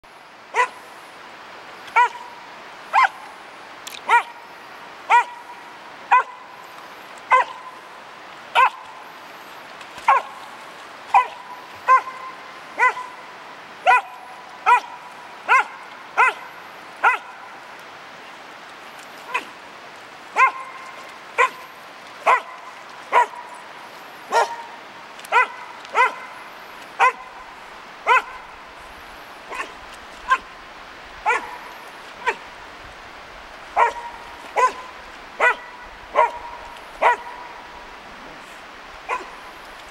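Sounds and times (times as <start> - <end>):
dog yelping: 2.0 - 2.2, 12.8 - 13.1, 20.4 - 20.7, 25.3 - 26.3, 28.1 - 28.3, 31.3 - 31.6, 33.8 - 34.8, 35.4 - 36.4.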